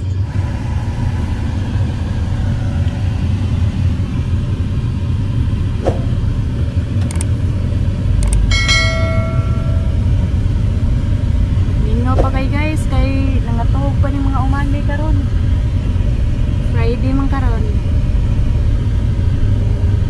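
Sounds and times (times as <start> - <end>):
car engine and road noise: 0.0 - 20.0
click: 7.0 - 7.3, 8.2 - 8.5
short bell-like chime: 8.5 - 10.1.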